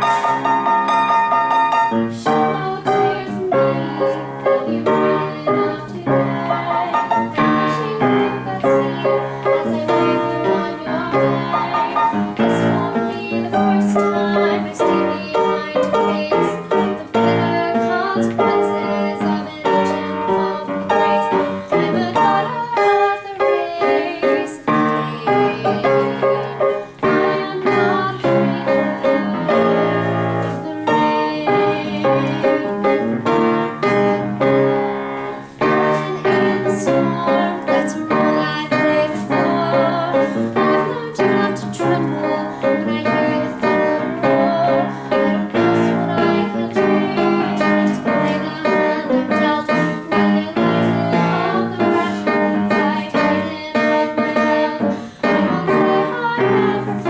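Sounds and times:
piano accompaniment: 0.0s - 57.0s
woman singing with vibrato: 0.0s - 57.0s.

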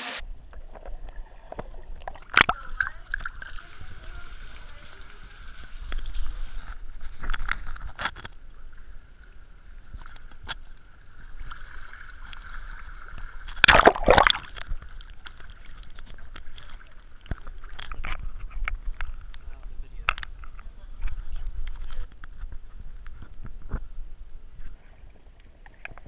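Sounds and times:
water sloshing and gurgling: 0.4s - 4.9s, 9.8s - 23.9s
small splashes: 11.4s - 18.1s.

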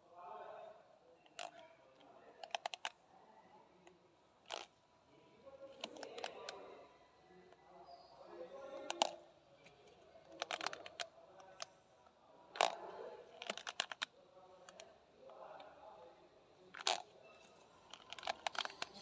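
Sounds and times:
paper filter clicks and crackles: 8.8s - 11.7s, 12.6s - 14.1s, 16.8s - 19.0s.

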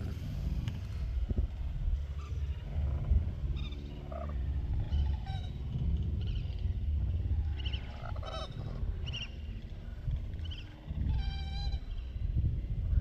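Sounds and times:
low wind rumble on microphone: 0.0s - 13.0s
wild birds calling: 2.1s - 12.3s.

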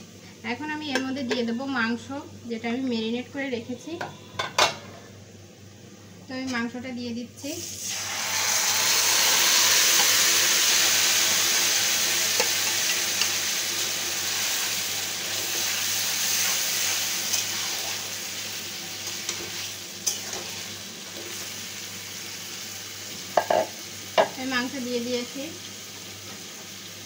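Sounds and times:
meat sizzling in hot oil: 7.4s - 27.0s.

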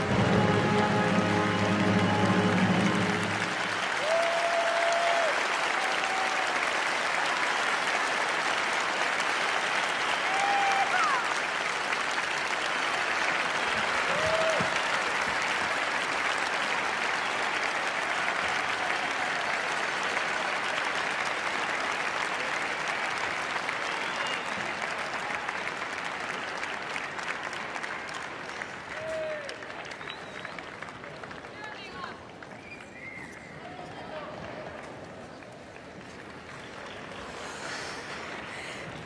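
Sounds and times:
crowd calls: 0.0s - 6.6s
audience applauding: 0.0s - 39.0s.

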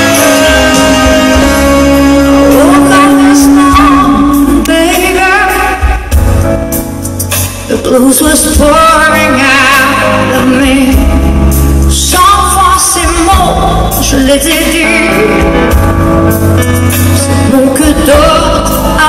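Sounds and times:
woman singing with vibrato: 0.0s - 6.2s, 7.7s - 15.7s, 17.2s - 19.0s
electric guitar: 0.0s - 12.1s
heavy bass: 0.0s - 19.0s.

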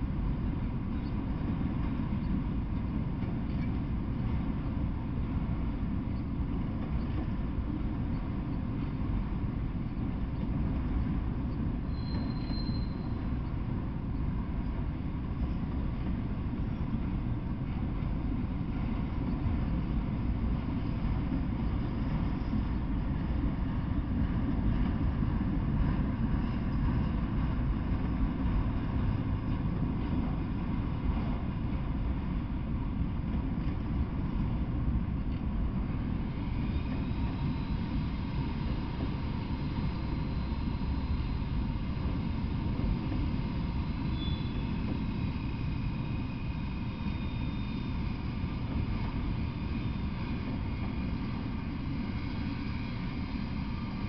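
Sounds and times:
train wheels rumbling on rails: 0.0s - 54.0s
high wheel squeal: 11.9s - 13.5s, 43.5s - 53.8s.

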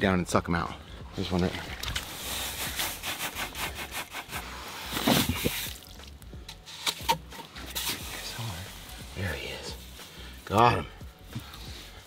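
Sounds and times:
clam gun scraping in sand: 1.9s - 5.8s.

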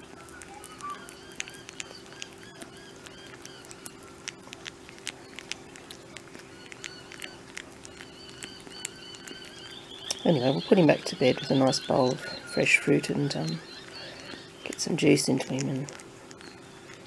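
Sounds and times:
wet tongue clicks and smacks: 0.0s - 10.7s, 13.5s - 17.0s
animal licking and chewing: 0.0s - 17.0s
steady low hum: 0.0s - 17.0s.

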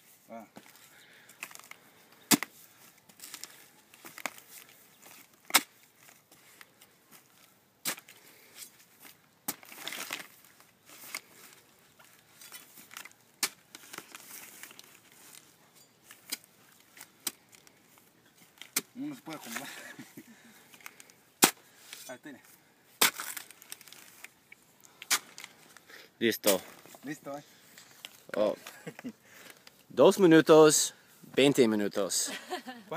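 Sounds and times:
blade chopping leaf stubs: 23.0s - 23.6s.

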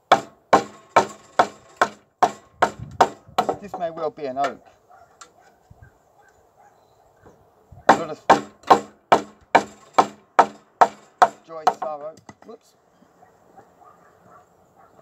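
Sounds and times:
blade chopping into wood: 7.9s - 12.5s.

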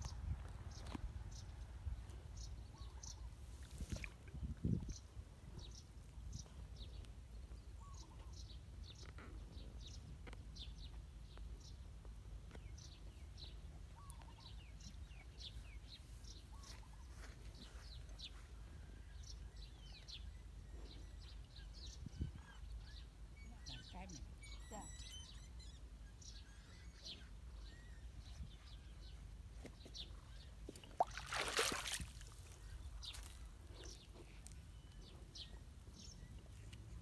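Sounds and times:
faint bird chirps: 16.4s - 29.4s.

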